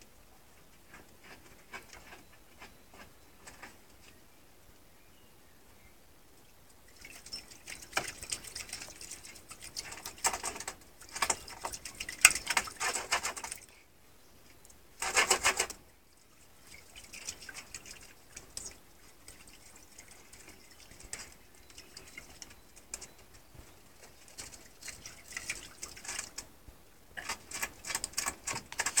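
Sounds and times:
ferrets lapping water: 0:06.8 - 0:29.0.

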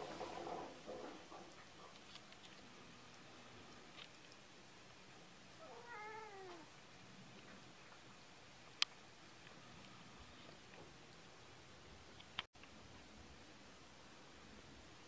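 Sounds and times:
cat meowing: 0:05.6 - 0:06.7.

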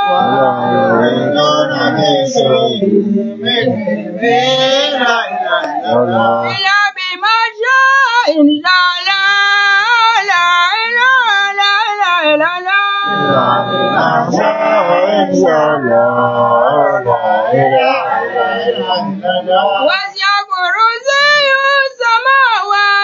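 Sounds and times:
lower voices singing: 0:00.0 - 0:06.7, 0:13.0 - 0:20.1
man singing chant: 0:00.0 - 0:22.9.

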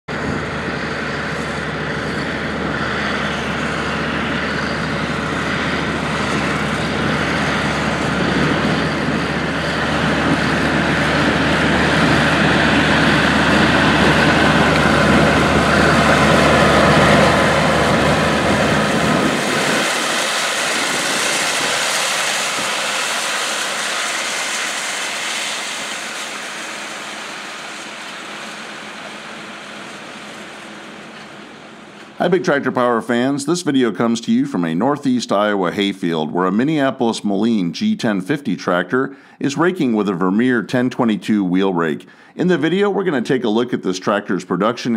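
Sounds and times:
tractor engine running under load: 0:00.1 - 0:34.4
distant tractor: 0:00.1 - 0:36.1.

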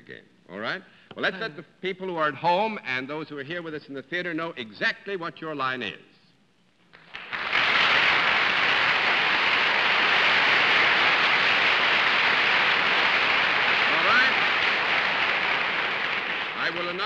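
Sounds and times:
audience applauding: 0:07.0 - 0:17.0.

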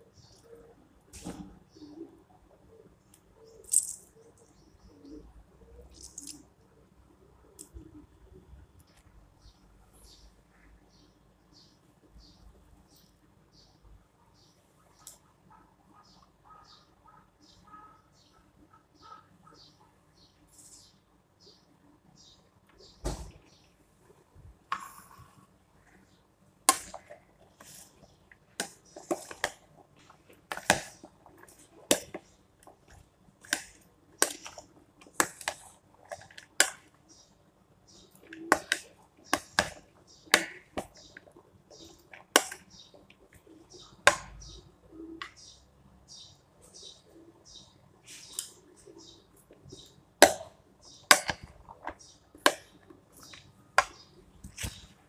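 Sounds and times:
vegetables rustling: 0:54.4 - 0:55.0.

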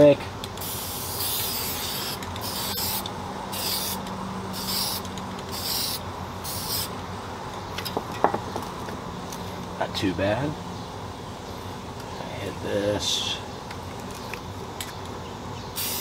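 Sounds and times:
aerosol spray paint bursts: 0:00.6 - 0:06.9, 0:15.8 - 0:16.0.

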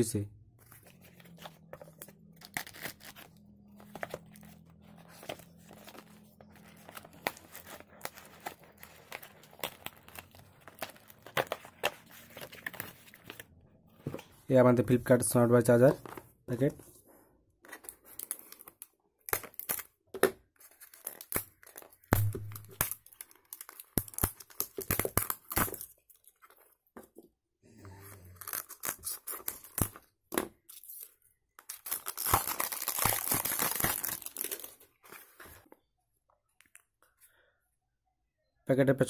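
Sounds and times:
shrink wrap tearing: 0:01.0 - 0:06.0, 0:28.3 - 0:30.0, 0:31.6 - 0:34.8
plastic shrink wrap crinkling: 0:31.6 - 0:35.0.

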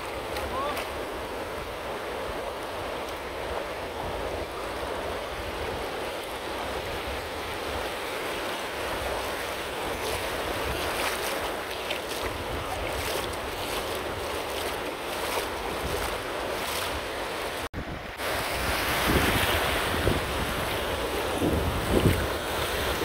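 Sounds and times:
surf washing through shallows: 0:00.0 - 0:23.0
wind on microphone: 0:00.0 - 0:23.0
water splashing crackles: 0:08.6 - 0:17.7.

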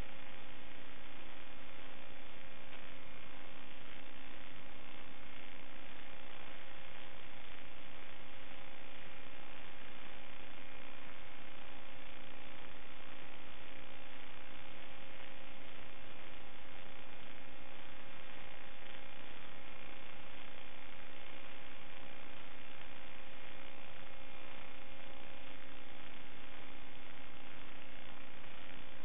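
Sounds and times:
electrical hum: 0:00.0 - 0:29.0
static hiss: 0:00.0 - 0:29.0.

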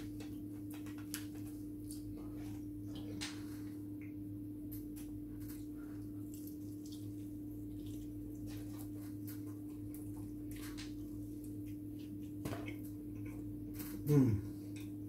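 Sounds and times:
chewing crunchy food: 0:04.9 - 0:15.0.

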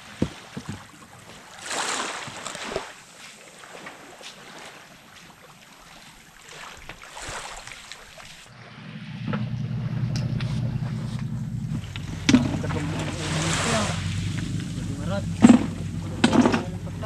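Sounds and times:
surf: 0:00.0 - 0:17.0
wind: 0:00.0 - 0:17.0
low pulsing motor drone: 0:08.5 - 0:17.0.

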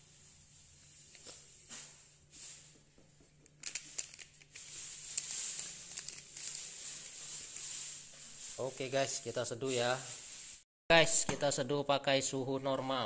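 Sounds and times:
foil sachet crinkling: 0:03.8 - 0:10.6
powder pouring hiss: 0:04.6 - 0:10.6.

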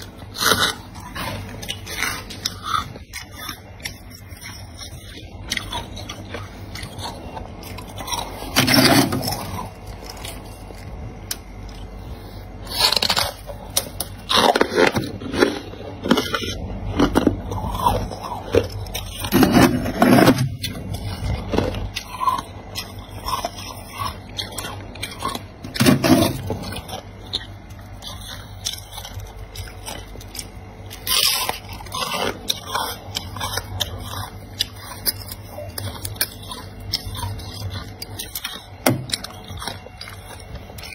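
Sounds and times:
freezer frost crunching: 0:00.0 - 0:40.9
frost scraping: 0:12.1 - 0:24.0.

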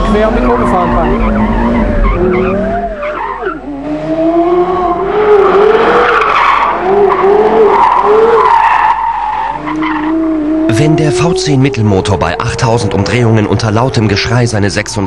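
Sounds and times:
tyres squealing: 0:00.0 - 0:03.7
deep car engine: 0:00.0 - 0:14.8.

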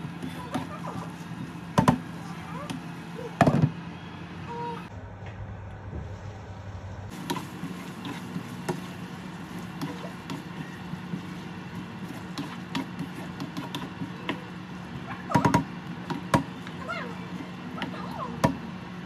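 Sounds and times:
steady low hum: 0:00.0 - 0:19.0
spatula scraping pan: 0:07.1 - 0:14.6.

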